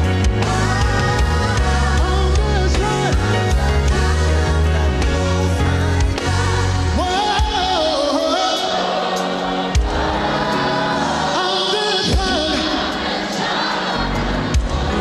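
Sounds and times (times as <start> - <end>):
band with bass and drums: 0.0 - 8.4, 9.5 - 10.6, 14.1 - 15.0
choir singing: 0.0 - 15.0
lead singer: 0.0 - 15.0.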